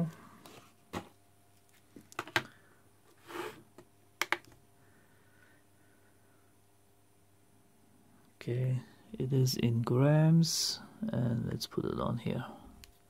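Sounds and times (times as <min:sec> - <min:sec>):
scale buttons clicking: 0:04.2 - 0:04.6.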